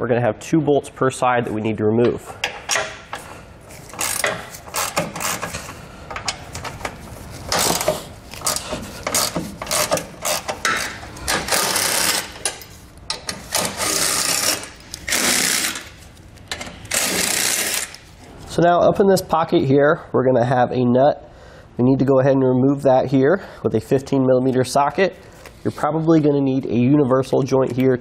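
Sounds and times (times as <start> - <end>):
ratchet clicking: 3.8 - 6.7, 7.5 - 15.9, 16.5 - 18.0
cordless power ratchet running: 3.9 - 5.7, 7.5 - 12.5, 13.5 - 15.9, 16.9 - 18.0.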